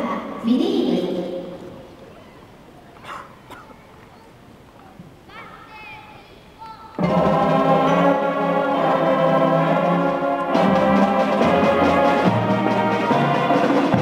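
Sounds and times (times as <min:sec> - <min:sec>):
brass band playing held chords: 0:07.0 - 0:14.0.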